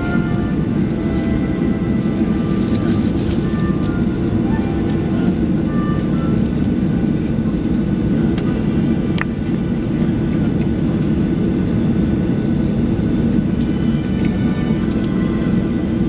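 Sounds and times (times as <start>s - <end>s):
faint engine whine: 0.0s - 16.0s
jet engine rumble: 0.0s - 16.0s.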